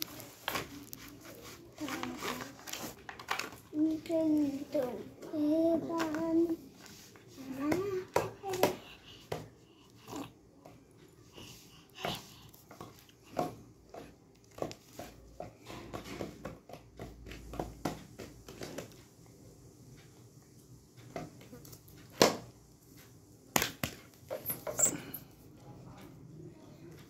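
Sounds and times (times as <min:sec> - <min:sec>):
plastic toy taps and crinkles: 0:00.0 - 0:09.6, 0:12.6 - 0:19.1.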